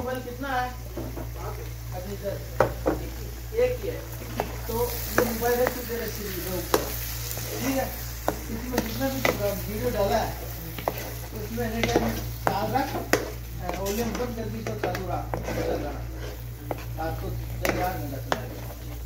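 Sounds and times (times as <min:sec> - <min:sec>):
food sizzling in a pan: 0:00.0 - 0:19.0
spatula scraping a pan: 0:04.2 - 0:19.0.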